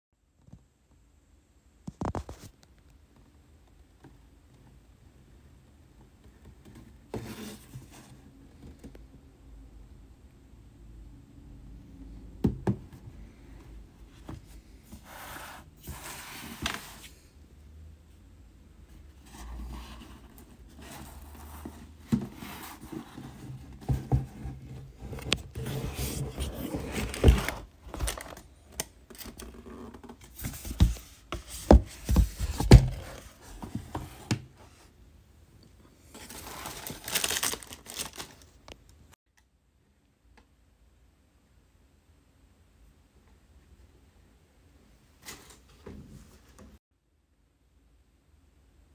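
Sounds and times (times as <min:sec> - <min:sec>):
cardboard box knocks and scrapes: 0:20.8 - 0:28.2, 0:30.2 - 0:34.6.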